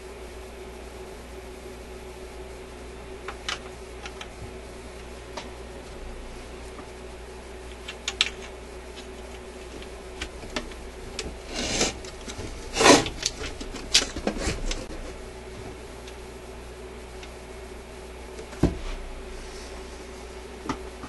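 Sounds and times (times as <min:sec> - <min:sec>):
steady low hum: 0:00.0 - 0:21.0
clicks and knocks of handling: 0:07.6 - 0:11.4
rubbing scrapes: 0:11.3 - 0:15.2.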